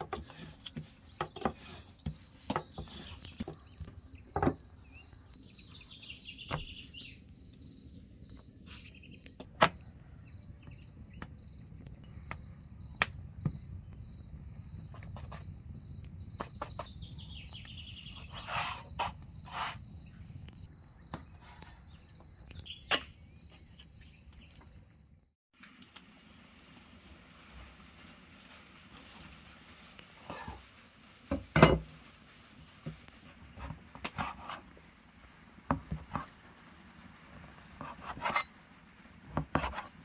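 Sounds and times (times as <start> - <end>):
bird chirps: 2.1 - 7.3, 16.0 - 18.9.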